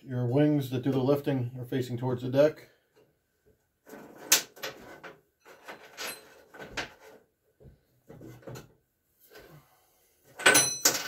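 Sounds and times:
small metal parts clinking: 10.4s - 11.0s.

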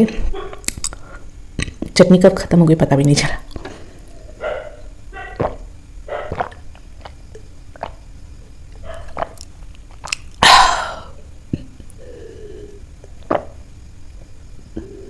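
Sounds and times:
person sipping and gulping: 5.4s - 8.1s, 8.8s - 13.6s.

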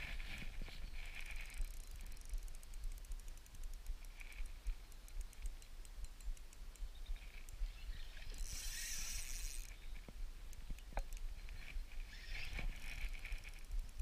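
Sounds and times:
fishing reel ticking: 0.3s - 14.0s
fishing line hissing: 8.1s - 9.8s.

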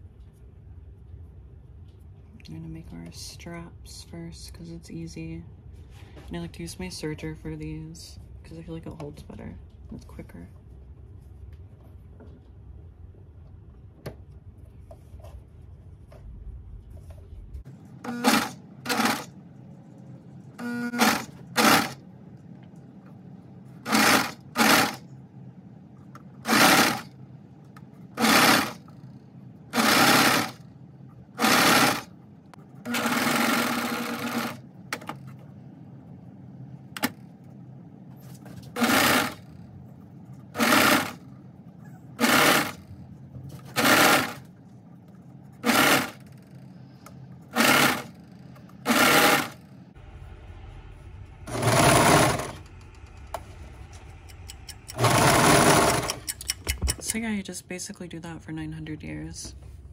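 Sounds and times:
overlock machine stitching: 18.0s - 19.4s, 20.6s - 22.0s, 23.8s - 25.0s, 26.4s - 27.2s, 28.1s - 30.7s, 31.3s - 32.1s, 32.8s - 35.2s, 38.8s - 39.6s, 40.5s - 41.3s, 42.2s - 42.9s, 43.6s - 44.5s, 45.6s - 46.6s, 47.4s - 49.8s, 51.4s - 53.4s, 54.0s - 57.1s.

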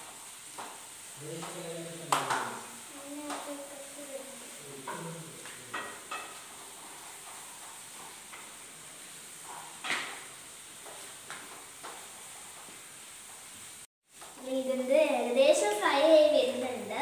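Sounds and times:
food sizzling in oil: 0.0s - 17.0s
spatula scraping a pan: 5.7s - 13.8s.

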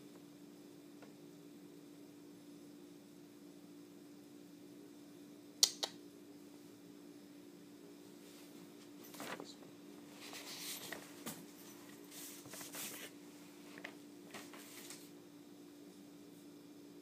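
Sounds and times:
steady low hum: 0.0s - 17.0s
faint scratching and rustling: 8.1s - 15.1s.

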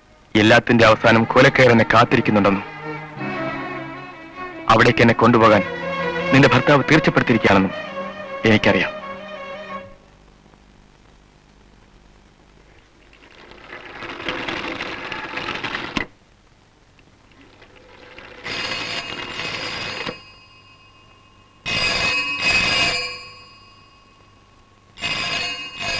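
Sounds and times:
telephone bell ringing: 17.7s - 25.9s.

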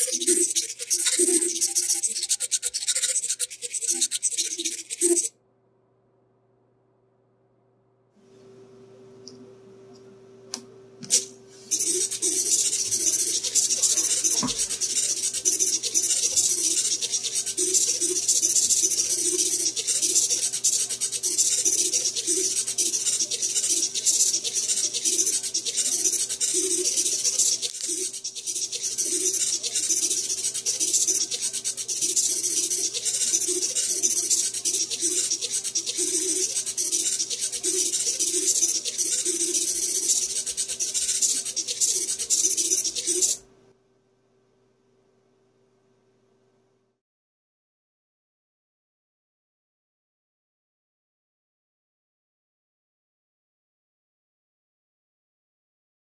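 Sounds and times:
servomotors whirring and buzzing: 11.1s - 43.4s.

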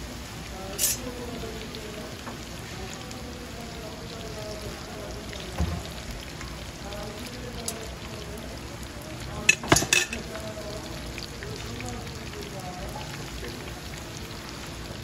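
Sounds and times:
oil sizzling in wok: 0.0s - 15.0s
metal tongs clacking: 0.8s - 1.0s, 9.5s - 10.3s.

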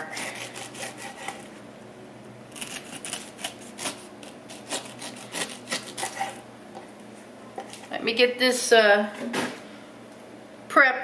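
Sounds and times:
knife cutting pineapple rind: 0.0s - 1.6s, 2.5s - 6.4s.

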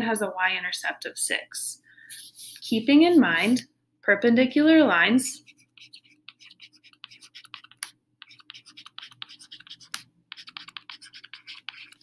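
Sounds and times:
stylus scratching on tablet screen: 2.1s - 3.6s, 5.3s - 12.0s.

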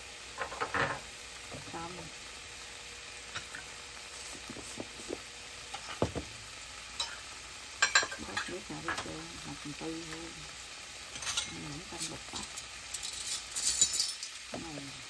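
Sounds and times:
tofu sizzling in frying pan: 0.0s - 15.0s.

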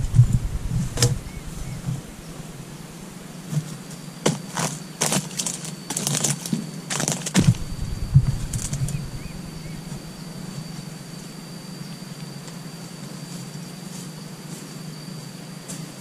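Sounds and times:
faint high-pitched whine: 0.0s - 6.1s, 7.0s - 16.0s
dry fronds rustling and crackling: 0.0s - 11.6s.

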